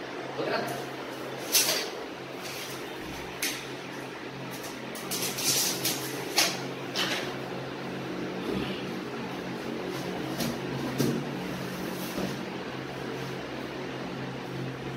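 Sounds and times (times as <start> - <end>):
steady low hum: 0.0 - 14.9
wallpaper rustling and scraping: 1.2 - 3.3, 4.4 - 7.3, 9.5 - 13.7.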